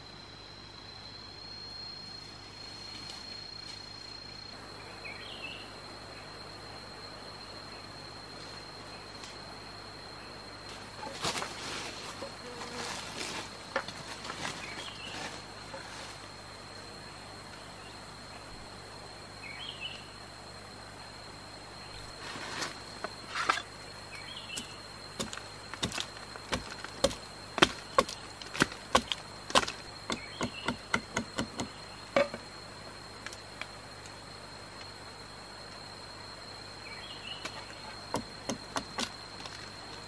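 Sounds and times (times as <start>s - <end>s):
high-pitched insect drone: 0.0s - 40.0s
sharp irregular knocks: 25.2s - 32.4s.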